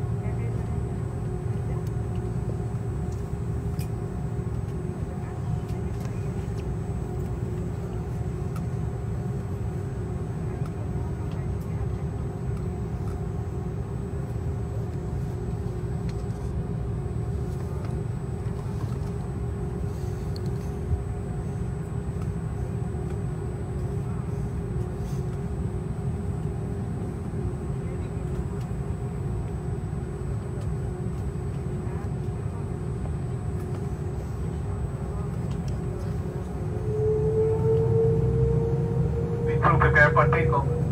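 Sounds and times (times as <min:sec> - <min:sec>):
airliner engines idling: 0:00.0 - 0:40.9
steady hum: 0:00.0 - 0:40.9.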